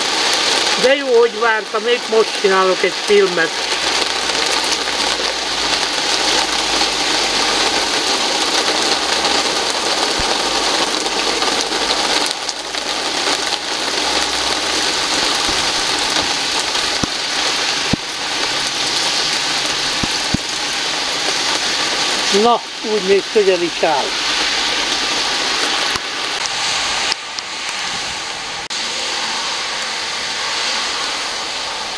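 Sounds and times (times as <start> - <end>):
raindrop tapping: 0.0 - 27.8
steady rain falling: 0.0 - 31.9.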